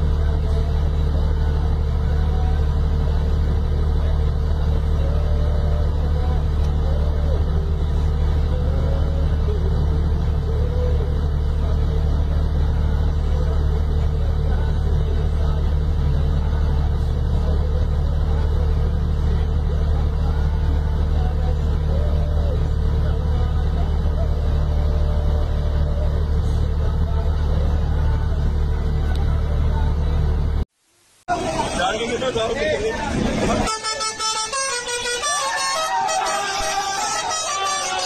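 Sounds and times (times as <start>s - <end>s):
truck diesel engine rumbling: 0.0s - 38.0s.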